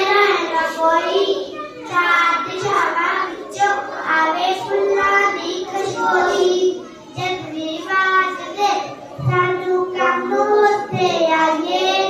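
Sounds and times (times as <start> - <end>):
child singing: 0.0 - 12.0.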